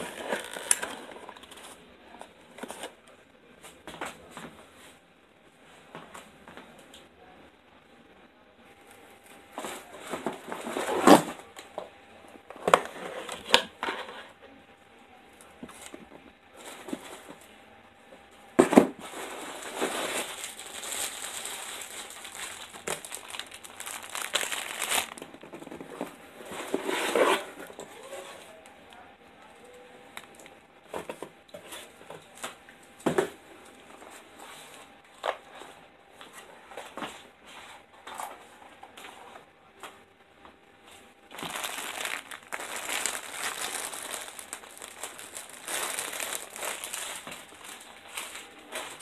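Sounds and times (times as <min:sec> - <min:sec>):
plastic and cardboard crinkling: 0:00.0 - 0:03.1, 0:08.8 - 0:11.8, 0:15.6 - 0:17.5, 0:18.6 - 0:28.6, 0:41.3 - 0:49.0.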